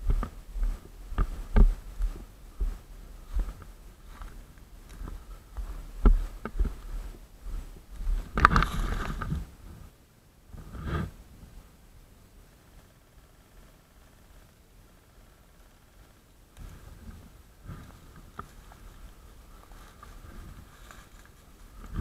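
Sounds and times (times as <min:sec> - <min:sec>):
footsteps crunching through brush: 0:00.0 - 0:09.5, 0:16.8 - 0:22.0
rustle of branches and leaves: 0:00.0 - 0:11.6, 0:12.6 - 0:22.0.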